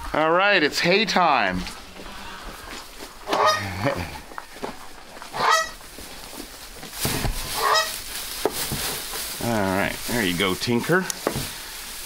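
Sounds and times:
farm animals calling harshly: 1.8 - 4.4, 5.2 - 6.0, 7.3 - 8.4
hay rustling: 4.5 - 12.0.

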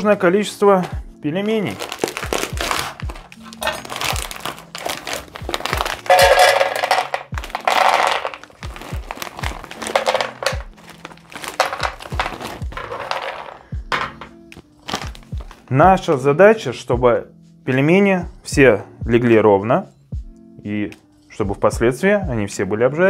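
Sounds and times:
background music with steady beat: 0.0 - 23.0
plastic bag crinkling: 1.5 - 13.6, 14.8 - 15.6
dumplings tumbling into pan: 1.8 - 14.3.

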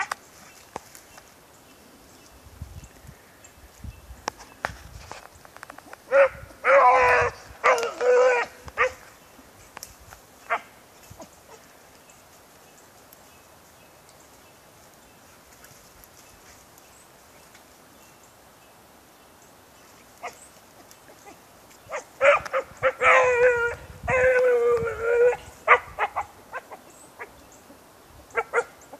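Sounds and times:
dog baying: 21.2 - 27.3.

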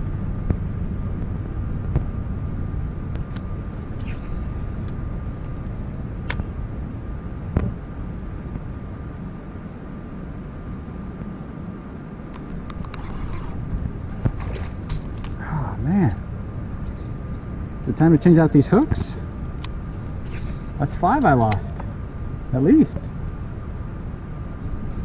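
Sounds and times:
faint thin whine: 0.0 - 25.0
steady low rumble: 0.0 - 25.0
sharp clicks: 21.2 - 21.9.

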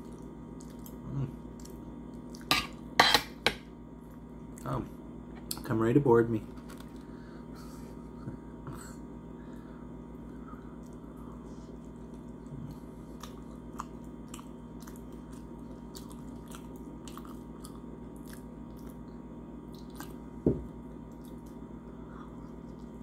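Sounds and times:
low hum: 6.4 - 23.0.

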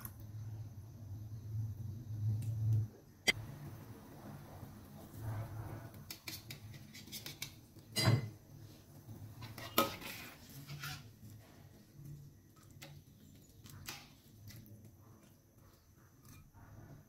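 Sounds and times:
spoon scraping against a wok: 5.0 - 8.1, 9.4 - 11.7.

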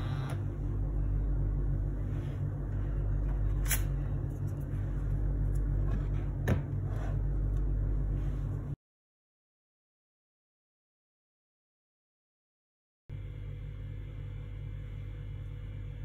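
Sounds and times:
steady low hum: 0.0 - 8.8, 13.1 - 16.0.

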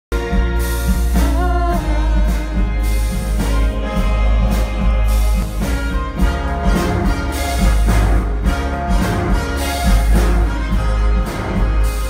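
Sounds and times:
orchestra playing pop arrangement: 0.1 - 12.0.

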